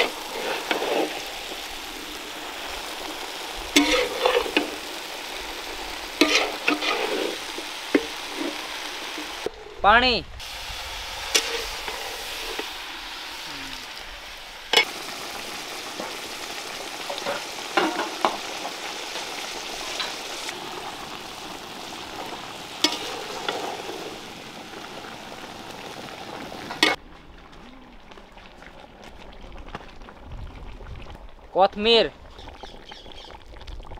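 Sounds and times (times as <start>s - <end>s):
food sizzling in a pan: 0.0s - 9.5s, 10.4s - 27.0s
metal ladle knocking on pan: 17.2s - 18.4s.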